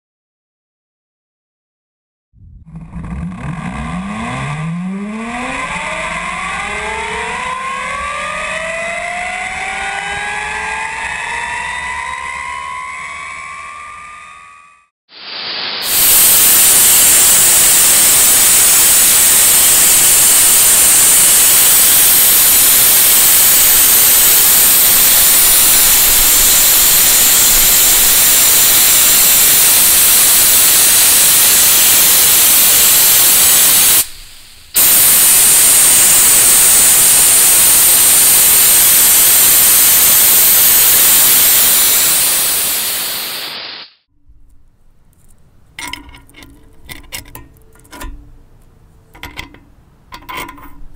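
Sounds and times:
compressed air hissing: 15.2s - 44.0s.

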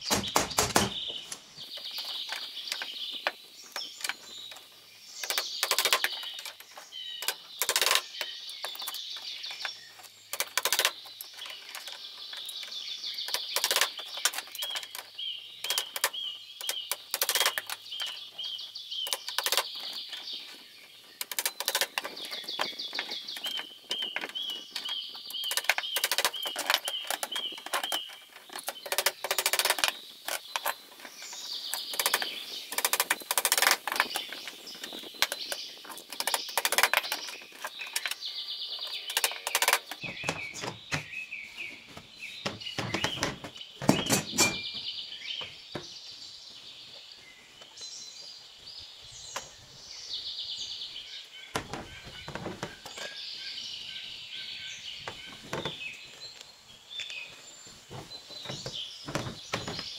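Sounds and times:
sharp knocks and clicks: 0.0s - 18.2s, 21.2s - 31.1s, 31.7s - 38.2s, 38.8s - 41.2s, 42.4s - 44.8s, 57.9s - 59.9s
birds chirping: 0.0s - 59.9s.

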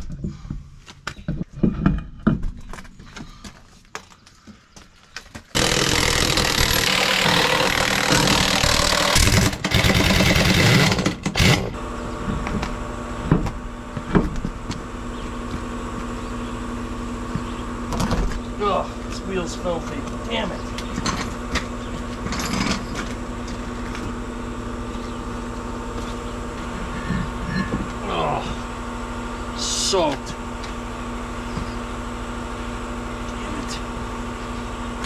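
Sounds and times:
impact wrench running: 5.5s - 11.8s
steady machine hum: 5.5s - 35.0s.

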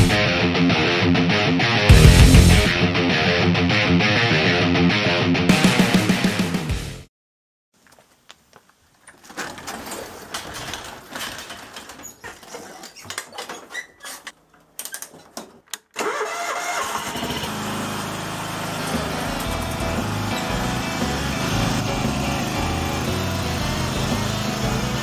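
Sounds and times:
lawn tractor engine running: 9.1s - 25.0s.

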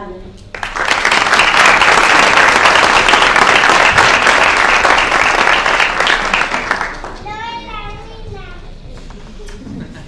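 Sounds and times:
crowd applause: 0.6s - 7.3s.

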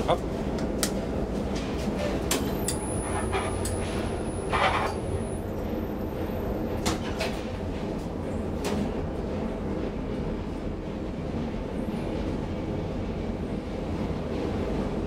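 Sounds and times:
elevator doors closing: 1.7s - 5.4s.

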